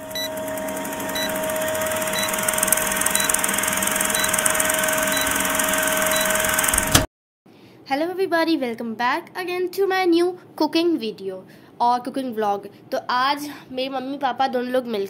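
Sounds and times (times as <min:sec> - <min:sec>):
film projector clattering: 0:00.0 - 0:07.1
short high beeps: 0:01.1 - 0:06.7.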